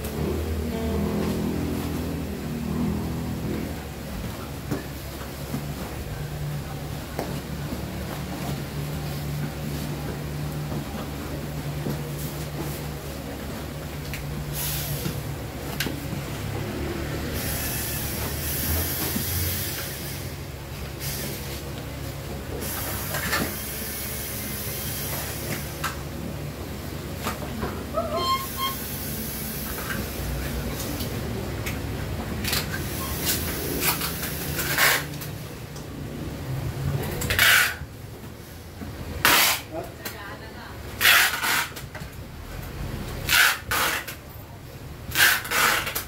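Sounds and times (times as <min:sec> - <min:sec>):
packing tape pulled from roll: 0:32.4 - 0:35.4, 0:37.1 - 0:37.9, 0:39.2 - 0:39.8, 0:41.0 - 0:42.1, 0:43.2 - 0:44.2, 0:45.1 - 0:46.0.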